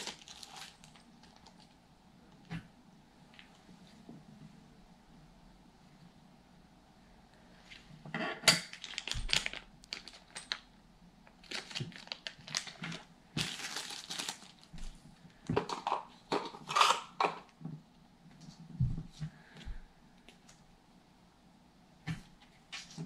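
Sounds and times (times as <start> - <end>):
plastic and paper crinkling: 0.0 - 1.8, 8.7 - 15.9.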